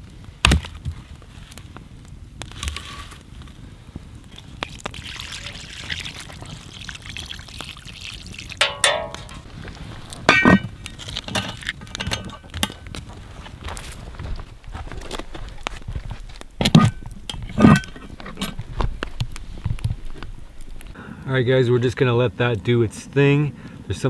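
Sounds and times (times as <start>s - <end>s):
liquid pouring and trickling: 4.6s - 9.6s
short ringing clinks: 8.6s - 9.4s.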